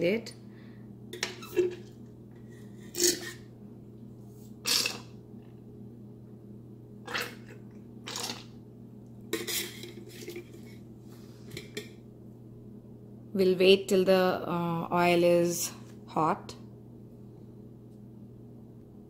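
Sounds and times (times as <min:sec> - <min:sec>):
utensil scraping a steel saucepan: 0:02.5 - 0:03.5, 0:09.4 - 0:10.8.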